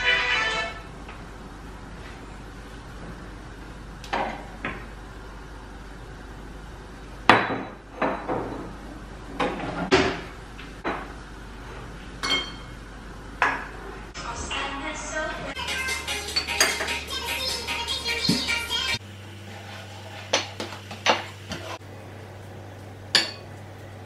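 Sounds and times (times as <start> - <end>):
kitchenware knocks and clinks: 7.3 - 8.8, 12.2 - 12.7, 16.3 - 17.0.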